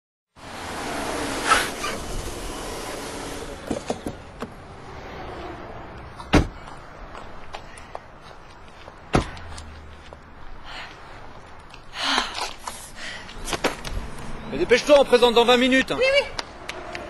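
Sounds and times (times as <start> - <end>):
hiss: 0.7 - 3.6.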